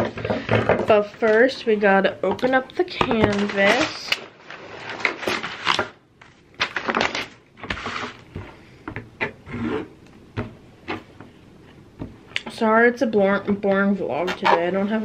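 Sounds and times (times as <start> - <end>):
plastic wrap crinkling: 3.2 - 8.3.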